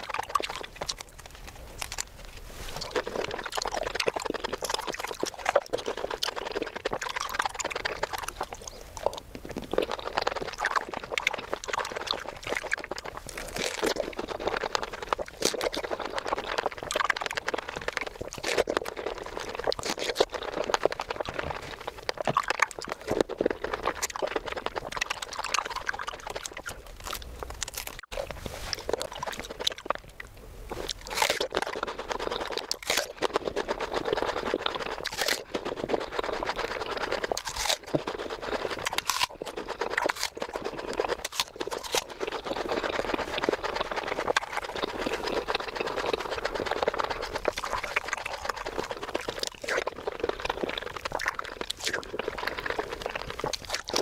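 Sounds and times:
mouth clicks and smacks: 0.0s - 54.0s
wet chewing and crunching: 0.0s - 54.0s
sharp fruit bites: 30.8s - 31.8s, 32.6s - 33.2s, 37.4s - 38.1s, 38.8s - 42.2s.

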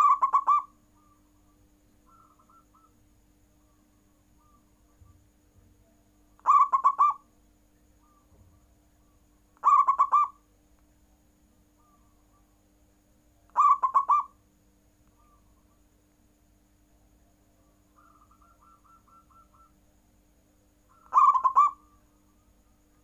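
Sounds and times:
dove cooing: 0.0s - 1.2s, 2.1s - 3.0s, 6.4s - 7.2s, 9.6s - 10.4s, 13.5s - 14.4s, 18.0s - 19.8s, 20.9s - 22.5s.

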